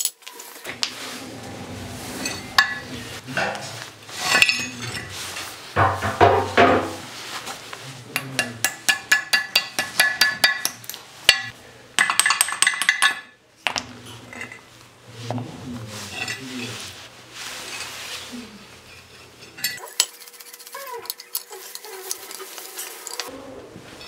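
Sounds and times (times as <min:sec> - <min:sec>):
cast iron parts clinking: 0:02.1 - 0:07.0, 0:08.2 - 0:14.7, 0:18.8 - 0:22.3.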